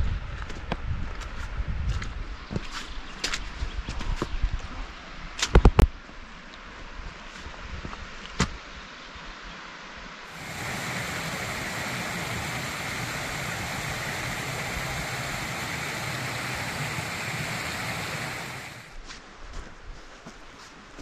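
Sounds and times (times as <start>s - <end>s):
stream running over rocks: 10.3s - 19.0s.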